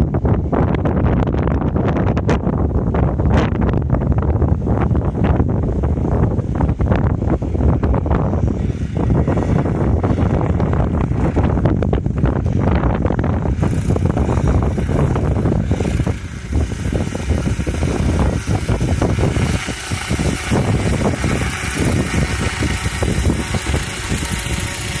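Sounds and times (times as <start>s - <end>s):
helicopter engine and rotor: 7.6s - 25.0s.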